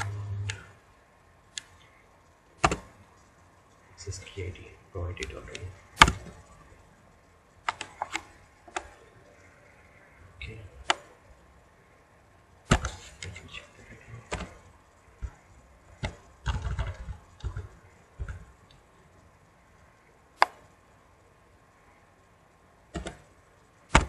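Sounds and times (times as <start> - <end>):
computer keyboard keystrokes: 7.6 - 8.9.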